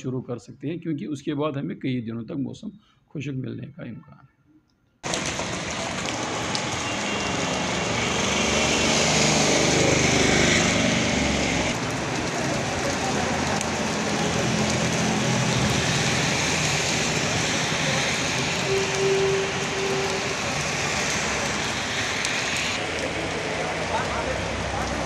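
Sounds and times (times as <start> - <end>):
rain on wet street: 5.0 - 25.0
vehicle engine passing: 5.1 - 18.6.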